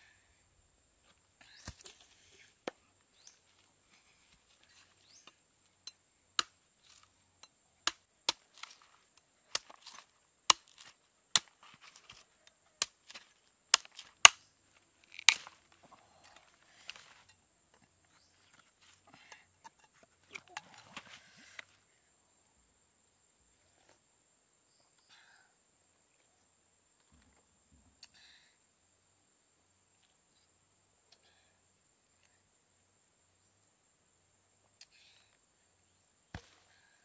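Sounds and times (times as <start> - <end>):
knife chopping coconut husk: 7.8 - 8.9, 9.5 - 12.2, 12.8 - 14.4, 36.3 - 36.6.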